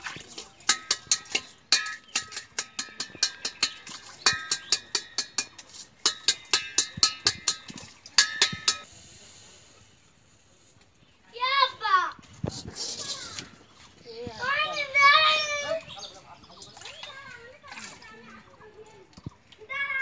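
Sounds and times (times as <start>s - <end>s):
eggs tapping on metal bowl: 0.1s - 8.9s
bowl ringing: 0.7s - 8.9s.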